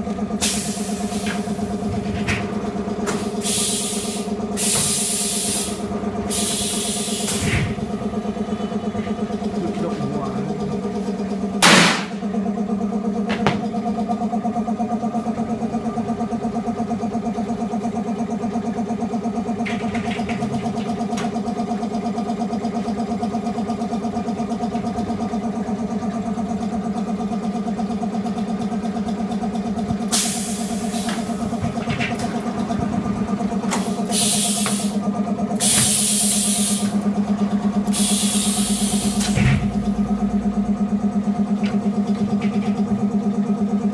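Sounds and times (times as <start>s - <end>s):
air hissing: 0.4s - 1.8s, 3.1s - 7.8s, 30.1s - 31.6s, 33.7s - 35.0s, 35.6s - 37.0s, 37.9s - 39.8s.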